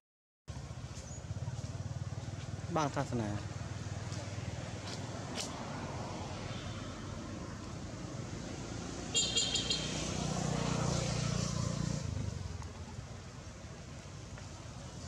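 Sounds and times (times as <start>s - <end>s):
road traffic rumbling: 0.5s - 15.0s
vehicle passing: 0.5s - 15.0s.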